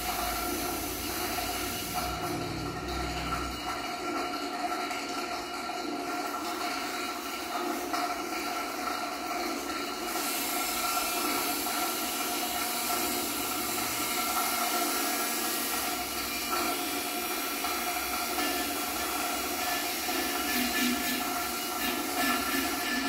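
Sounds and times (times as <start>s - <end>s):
hissing electronic drone: 0.0s - 3.8s, 10.2s - 23.0s.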